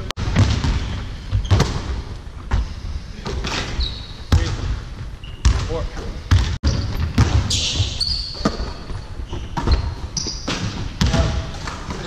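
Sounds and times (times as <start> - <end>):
basketballs bouncing on floor: 0.2 - 3.6, 4.3 - 12.0
short high squeak: 7.5 - 8.4.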